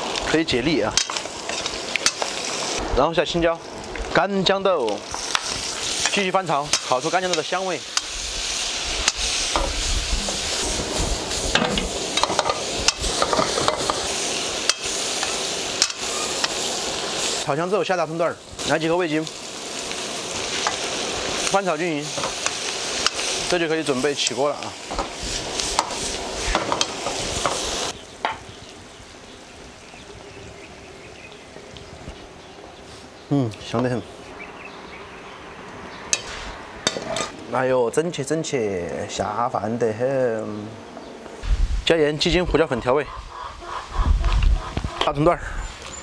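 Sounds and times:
food sizzling in a wok: 0.0 - 33.4, 36.1 - 37.5
ladle scraping wok: 36.1 - 37.4.

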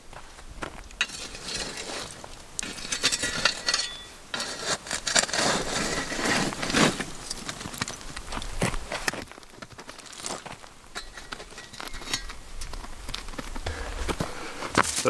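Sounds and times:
metal shovel scraping through ash: 1.0 - 8.1, 9.0 - 12.5.

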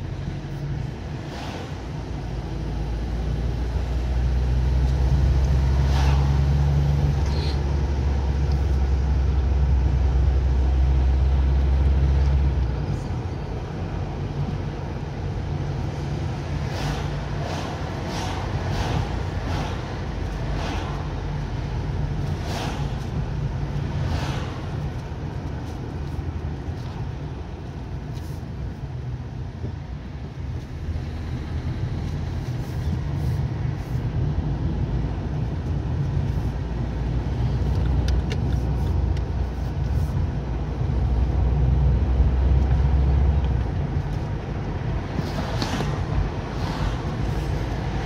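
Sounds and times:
car engine and tyre noise: 0.0 - 48.0.

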